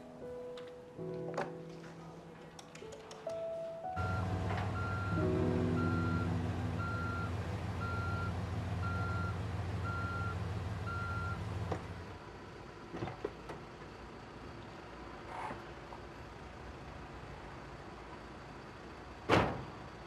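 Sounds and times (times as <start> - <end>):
reversing alarm beeping: 4.0 - 11.4
van engine running: 4.0 - 20.0.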